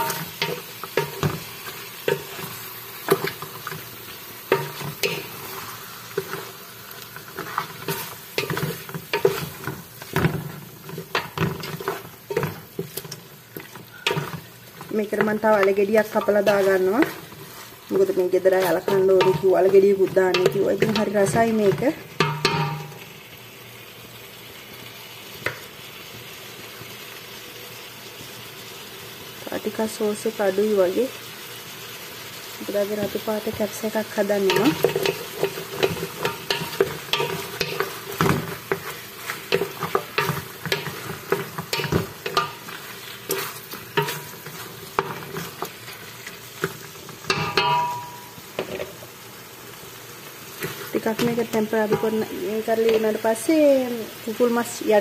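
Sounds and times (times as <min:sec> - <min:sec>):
wooden spoon scraping metal pot: 0:00.0 - 0:23.0, 0:33.0 - 0:48.9
chicken sizzling in oil: 0:00.0 - 0:55.0.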